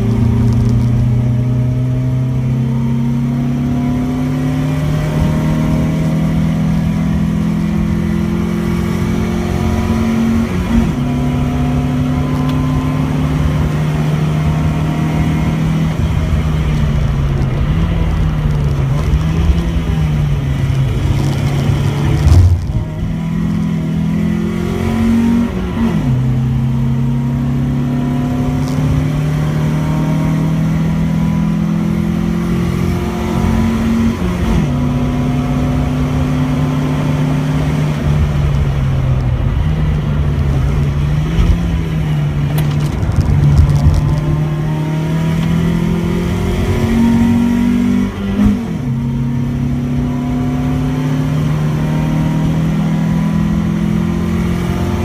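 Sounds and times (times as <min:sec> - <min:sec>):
car engine accelerating: 0:00.0 - 0:55.0.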